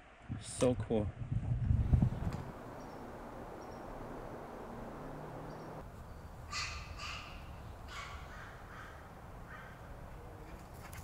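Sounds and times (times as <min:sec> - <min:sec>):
crow cawing: 0:06.5 - 0:09.9.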